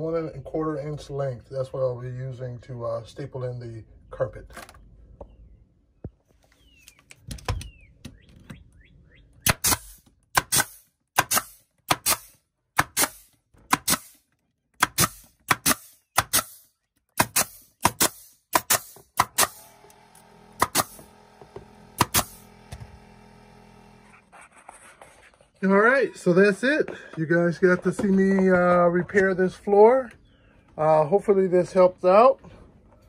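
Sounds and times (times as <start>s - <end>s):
pneumatic stapler firing: 9.4s - 14.2s, 14.8s - 23.4s.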